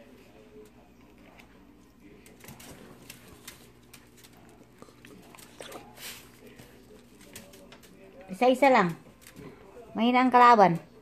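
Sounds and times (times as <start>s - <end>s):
dog claws clicking on tiles: 2.2s - 11.0s.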